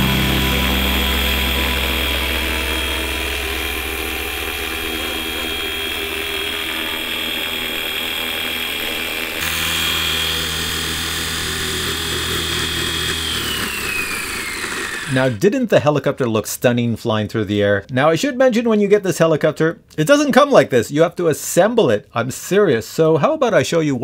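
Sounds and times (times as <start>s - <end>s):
helicopter rotor hum: 0.0s - 15.2s
electric motor high whine: 0.0s - 15.4s.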